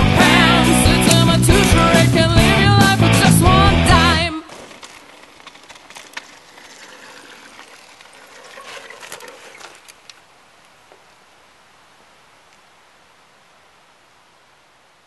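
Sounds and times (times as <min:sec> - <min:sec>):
loud rock song: 0:00.0 - 0:04.4
bike tyres crunching on gravel: 0:00.3 - 0:11.3
bike rattles and clicks: 0:03.8 - 0:10.3.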